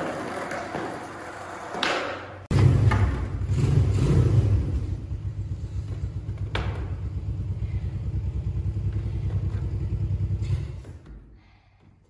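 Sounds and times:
engine rumbling: 0:02.5 - 0:11.7.

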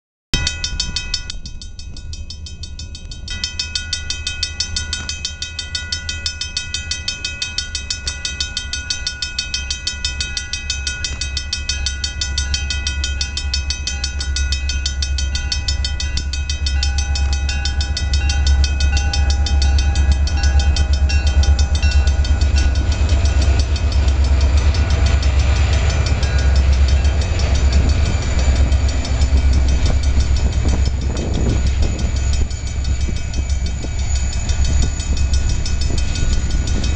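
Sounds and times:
crossing warning bell ringing: 0:00.4 - 0:36.9
diesel locomotives rumbling: 0:00.4 - 0:36.9.

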